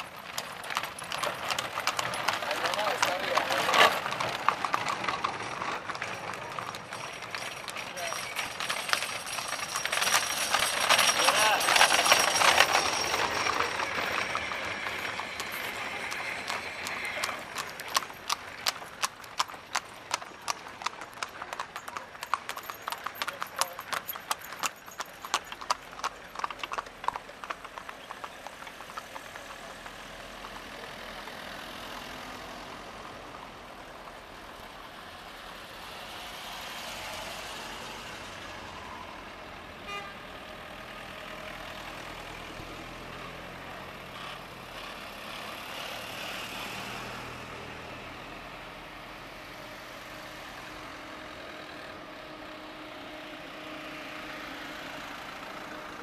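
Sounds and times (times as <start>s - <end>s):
cars driving past: 0.0s - 25.2s, 25.8s - 56.0s
hooves clip-clopping on asphalt: 0.0s - 31.8s.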